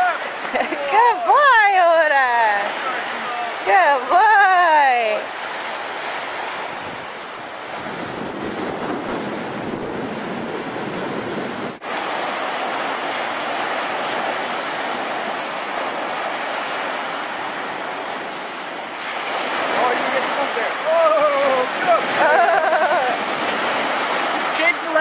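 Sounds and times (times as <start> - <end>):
waves washing onto pebble beach: 11.8 - 25.0.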